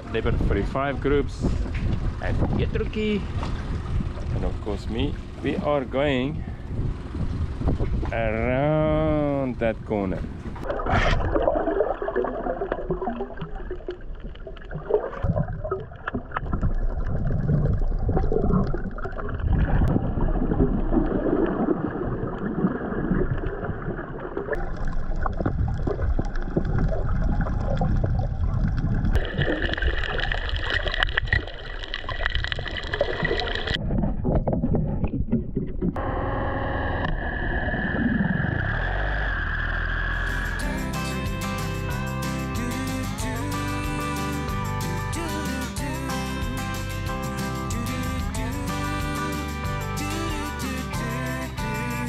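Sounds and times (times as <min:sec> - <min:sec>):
underwater rushing and sloshing: 0:00.0 - 0:08.2, 0:10.2 - 0:36.0.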